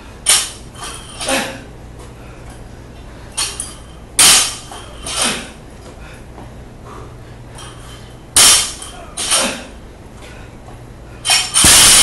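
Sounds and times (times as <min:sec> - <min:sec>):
barbell banging on rubber platform: 0:11.3 - 0:12.0.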